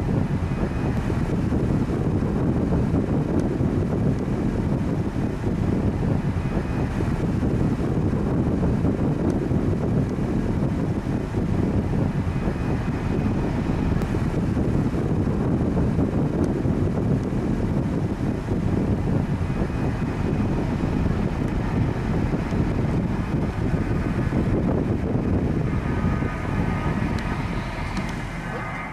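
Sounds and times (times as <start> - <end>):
wind buffeting microphone: 0.0 - 28.9
airport background noise: 18.1 - 28.9.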